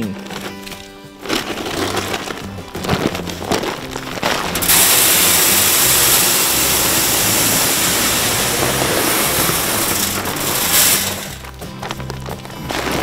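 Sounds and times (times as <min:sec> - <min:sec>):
grain pouring onto metal: 0:00.0 - 0:13.0.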